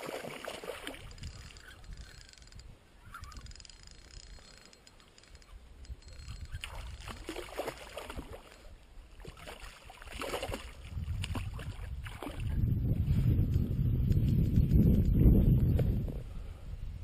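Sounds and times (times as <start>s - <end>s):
fish splashing in water: 0.0s - 1.6s, 6.6s - 8.5s.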